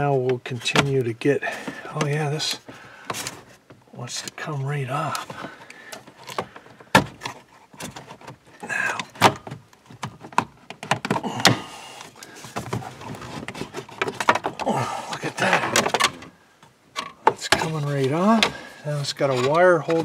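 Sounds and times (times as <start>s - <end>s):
plastic scraping and rattling: 5.1s - 11.4s, 12.1s - 16.3s, 16.9s - 20.0s.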